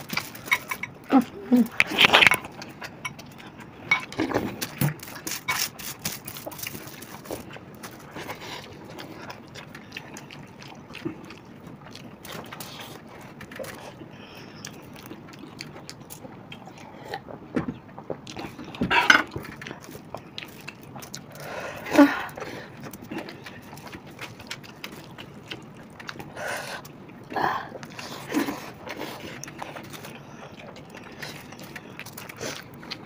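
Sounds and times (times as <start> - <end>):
fingers clicking and rustling in rice: 0.0 - 16.7, 22.3 - 27.0
chewing and lip smacks: 0.0 - 33.0.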